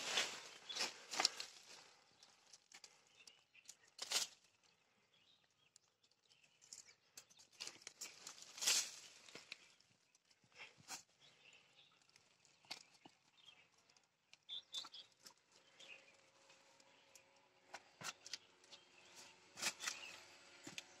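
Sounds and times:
shoes scuffing on rock and leaves: 8.3 - 9.2.

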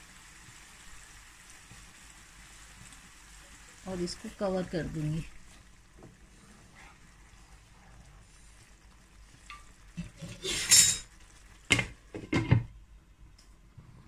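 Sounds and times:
food sizzling in pan: 0.0 - 12.9
spatula scraping pan: 9.5 - 11.1.

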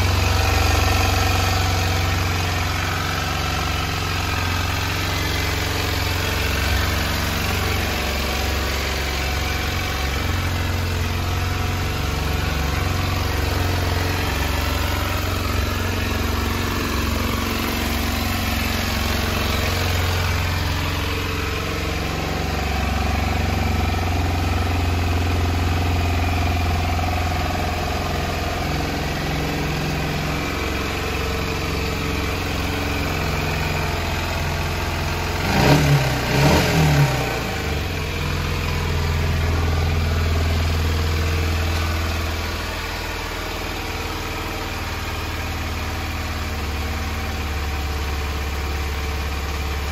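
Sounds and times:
motorcycle engine idling: 0.0 - 49.9.

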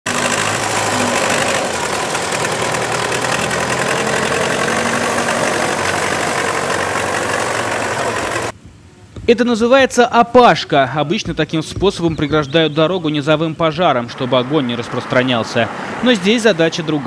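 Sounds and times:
tractor diesel engine running: 0.0 - 8.6.

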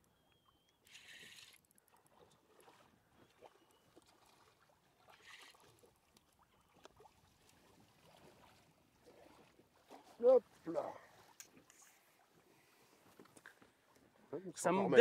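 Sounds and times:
water lapping: 0.4 - 14.3
fish splashing at surface: 0.9 - 6.0.

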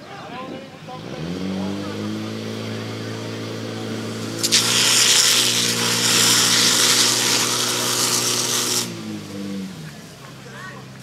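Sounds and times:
pump engine running hard: 1.3 - 9.5
water spraying from hose: 2.9 - 9.3.

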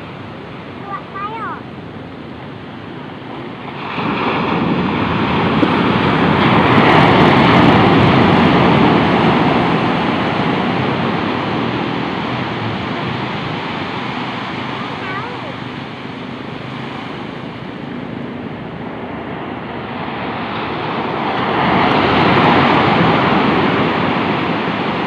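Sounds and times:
ocean waves breaking on beach: 0.0 - 25.0.

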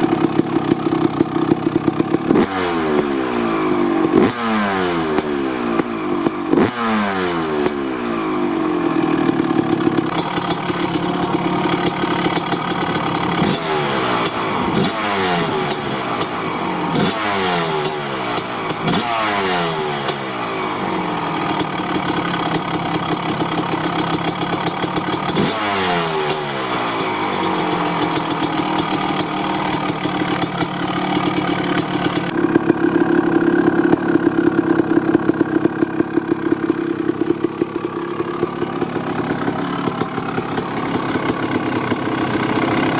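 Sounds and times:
two-stroke engine revving and idling: 0.0 - 42.9.

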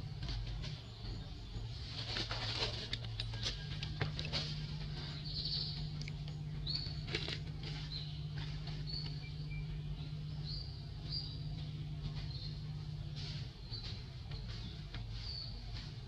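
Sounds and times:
steady low hum: 0.0 - 16.0
sharp clicks and rustles: 1.9 - 5.1, 5.8 - 9.3
monkey chewing food: 2.2 - 9.1.

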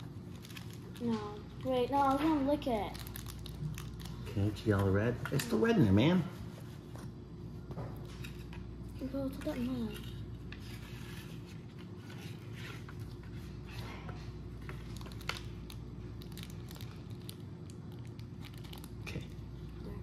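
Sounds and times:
plastic bag crinkling: 0.0 - 5.0, 14.7 - 19.6.

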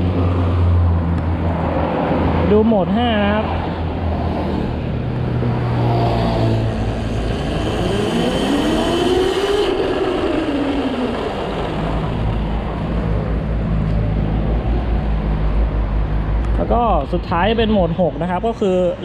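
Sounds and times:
steady low rumble: 0.0 - 19.0
electric motor whining: 5.6 - 13.2.

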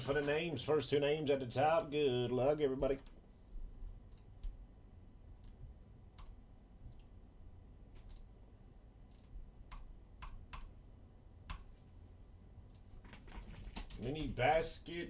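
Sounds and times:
computer mouse clicking: 4.1 - 4.6, 5.4 - 5.6, 6.2 - 7.2, 8.0 - 8.3, 9.1 - 10.8, 11.5 - 11.8, 12.7 - 13.2.

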